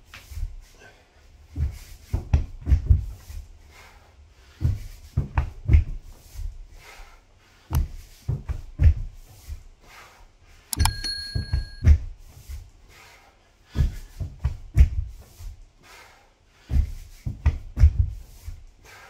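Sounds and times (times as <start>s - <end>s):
steady high tone: 10.8s - 11.8s
person breathing: 15.8s - 17.0s.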